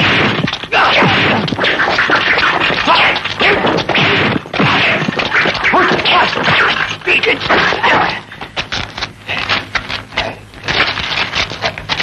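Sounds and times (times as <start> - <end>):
punch and kick hits: 0.0 - 6.9.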